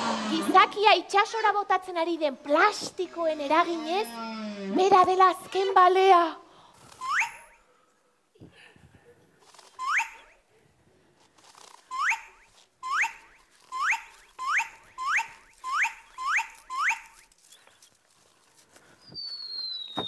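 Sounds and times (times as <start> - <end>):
comic rising whistle: 6.9 - 7.5, 11.9 - 17.2, 19.1 - 20.0.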